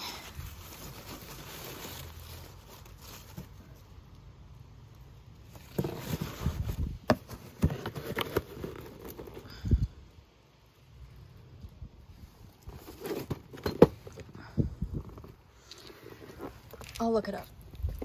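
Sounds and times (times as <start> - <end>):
paper rustling and crinkling: 0.0 - 4.0, 5.5 - 9.5.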